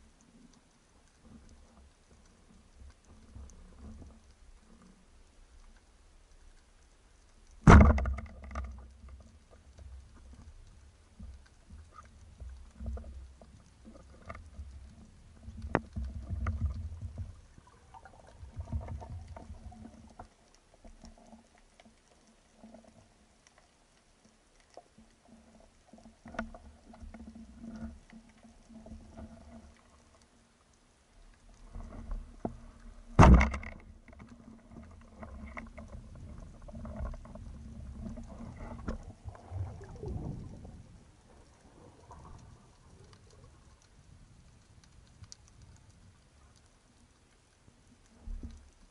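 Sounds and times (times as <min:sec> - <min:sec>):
muffled underwater rumbling: 0:07.5 - 0:21.6, 0:31.0 - 0:47.2.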